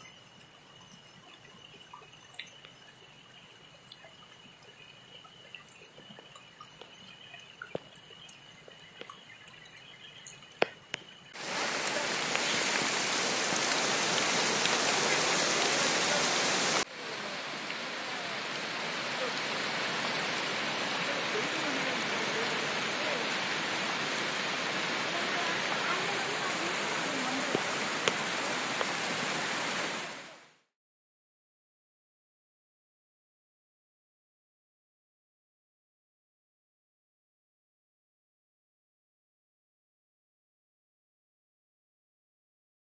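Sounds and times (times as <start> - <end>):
faint drips and clicks: 0.0 - 30.0
heavy rain hissing: 11.3 - 30.6.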